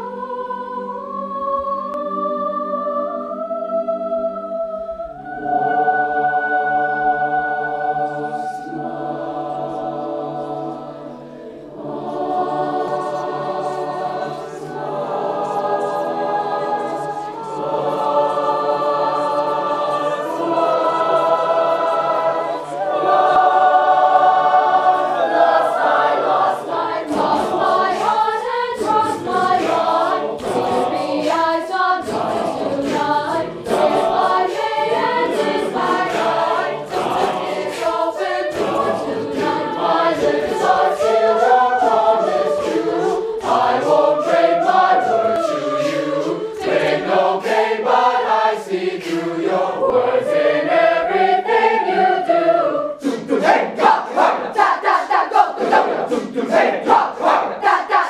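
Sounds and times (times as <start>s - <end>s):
choir singing: 0.0s - 58.0s
sharp percussive beats: 19.9s - 49.6s.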